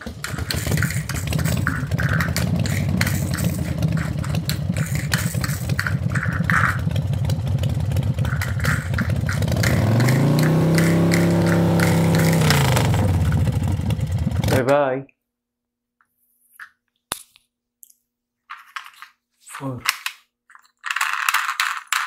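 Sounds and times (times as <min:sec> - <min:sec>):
motorcycle engine revving: 0:00.0 - 0:14.8.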